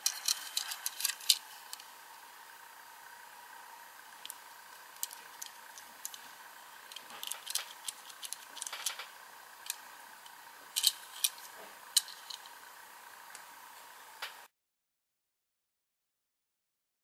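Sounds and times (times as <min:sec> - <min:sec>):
fingers clicking on metal toy car: 0:00.0 - 0:01.8, 0:05.0 - 0:06.2, 0:06.9 - 0:09.8, 0:10.8 - 0:12.5
faint steady hum: 0:00.0 - 0:14.5.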